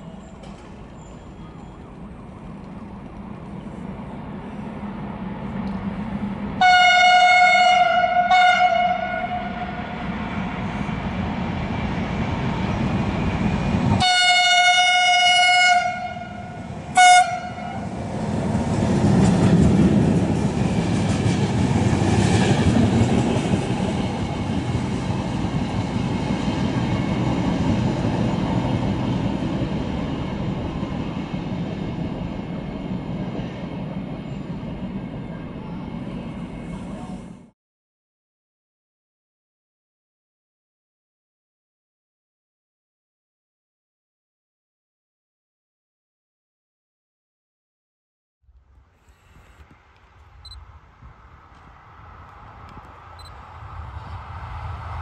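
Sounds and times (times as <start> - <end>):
train wheels rumbling on rails: 0.0 - 37.5
train horn blasts: 6.6 - 10.0, 14.0 - 17.9.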